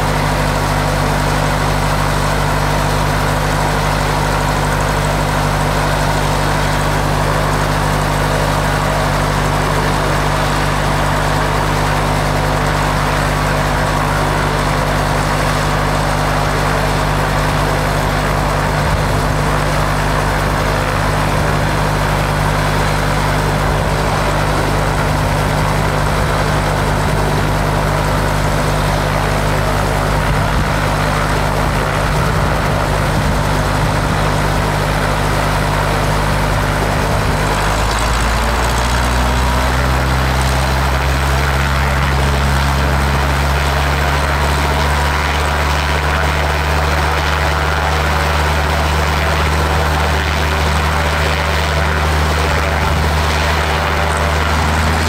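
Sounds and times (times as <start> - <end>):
helicopter engine idling: 0.0 - 55.0.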